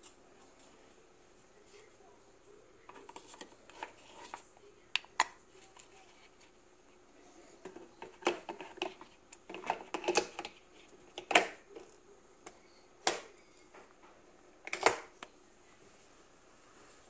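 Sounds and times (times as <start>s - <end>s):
hard plastic clicks and rattles: 7.6s - 11.9s.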